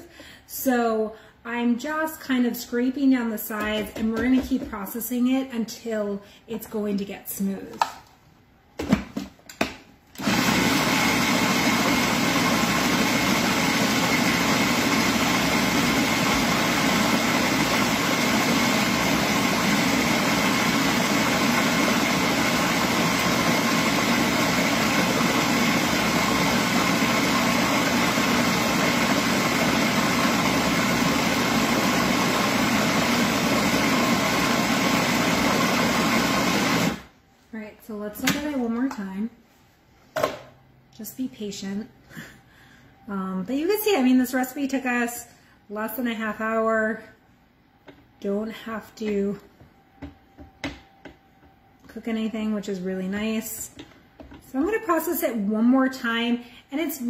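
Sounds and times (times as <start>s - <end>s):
food processor motor whine: 10.2s - 37.1s.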